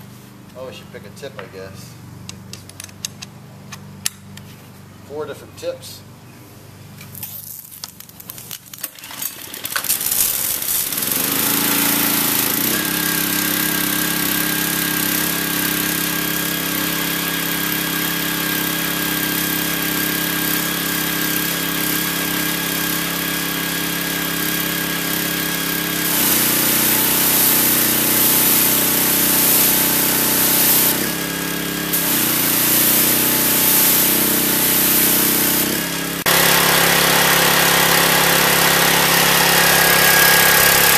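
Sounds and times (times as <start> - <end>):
gas engine running: 7.8 - 40.9
water jet hissing on concrete: 10.0 - 40.9.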